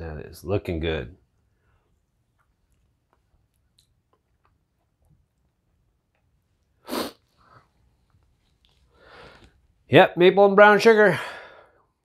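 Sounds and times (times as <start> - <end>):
sharp burst of breath: 6.8 - 7.5.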